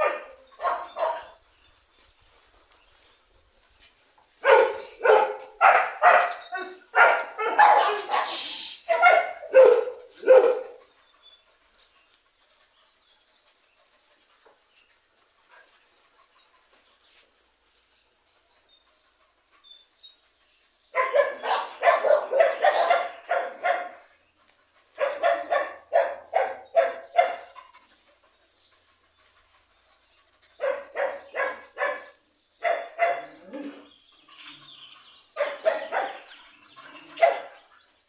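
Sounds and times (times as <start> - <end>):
dog barking: 0.0 - 1.4, 4.4 - 10.8, 20.9 - 24.1, 25.0 - 27.6, 30.6 - 33.9, 35.4 - 36.3, 37.1 - 37.6.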